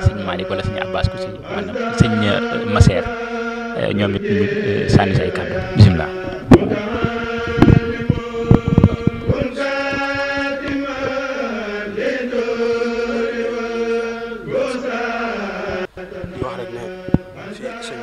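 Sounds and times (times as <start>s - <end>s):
voices chanting in held notes: 0.0s - 18.0s
microphone handling knocks: 5.6s - 11.2s, 15.7s - 17.4s.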